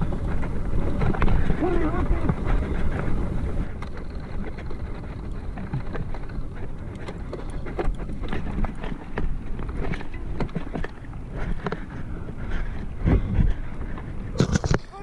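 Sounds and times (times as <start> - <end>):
bike rattling over bumps: 0.0 - 15.0
tyres rumbling on dirt: 0.0 - 15.0
wind on microphone: 9.6 - 15.0.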